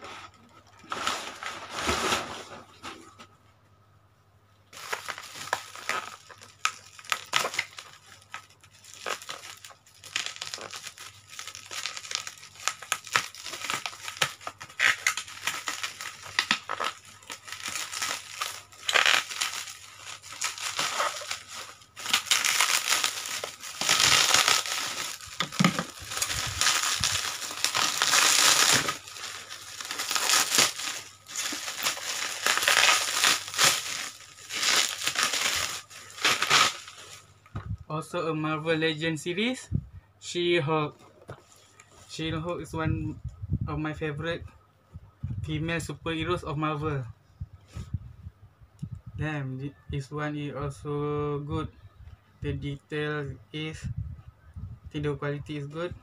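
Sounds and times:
plastic packaging crinkling: 4.7s - 37.3s
bubble-wrap bag crackling: 4.8s - 37.3s.

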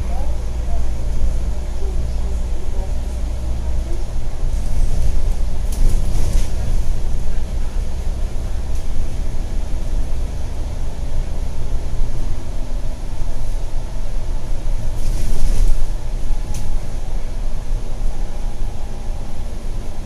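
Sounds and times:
bus engine and road rumble: 0.0s - 20.0s
faint click: 16.5s - 16.7s.

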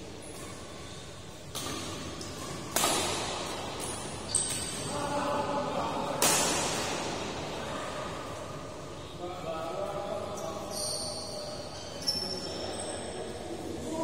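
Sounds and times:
rackets hitting a shuttlecock: 1.5s - 4.9s, 6.1s - 7.3s.

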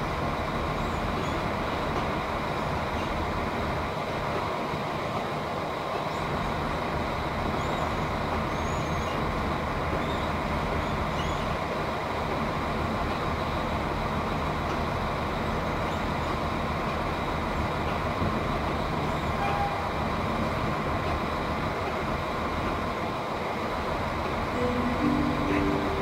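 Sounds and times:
diesel railcar engine drone: 0.0s - 26.0s.

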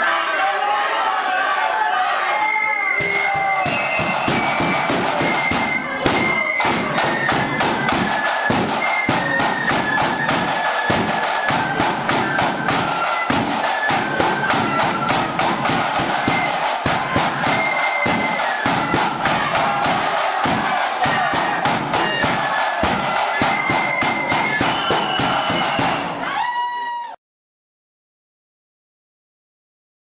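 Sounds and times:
flutes playing melody: 2.0s - 26.7s
side drums and bass drum: 3.0s - 26.2s.

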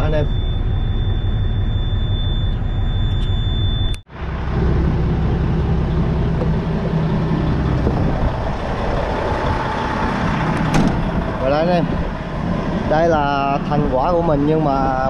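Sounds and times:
diesel truck engine idling: 4.1s - 15.0s.

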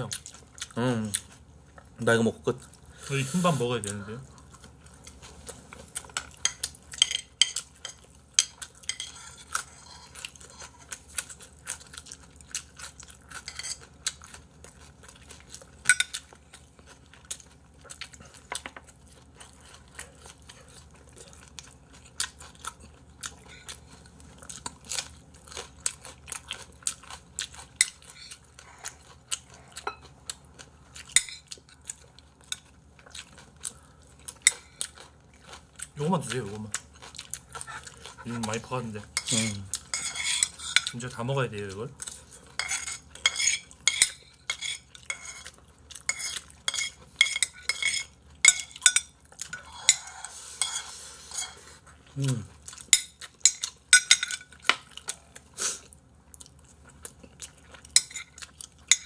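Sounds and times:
chewing: 0.0s - 3.1s, 3.7s - 59.0s
chopsticks and spoon clinking bowls: 6.0s - 10.2s, 13.3s - 13.9s, 29.8s - 30.1s, 38.2s - 41.2s, 42.5s - 54.8s, 57.8s - 59.0s.

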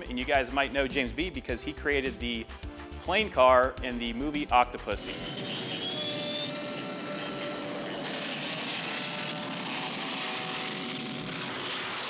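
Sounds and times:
high engine whine: 5.1s - 12.0s
jet engine roar: 5.1s - 12.0s.

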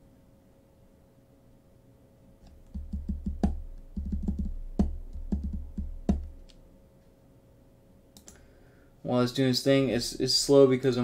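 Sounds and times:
typing on computer keyboard: 2.7s - 6.3s.

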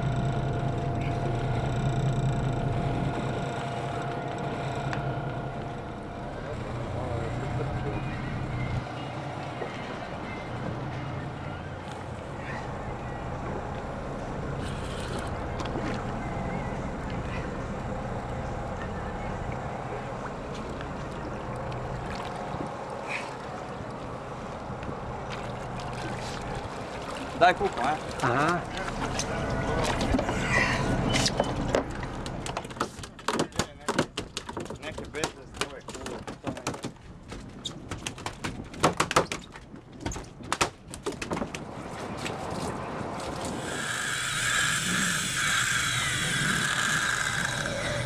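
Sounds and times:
motorboat engine running: 0.0s - 32.8s, 41.9s - 48.0s
water noise: 0.0s - 33.2s, 41.4s - 48.0s
wind: 0.0s - 48.0s
knocks and thuds on boat deck: 31.2s - 41.7s.

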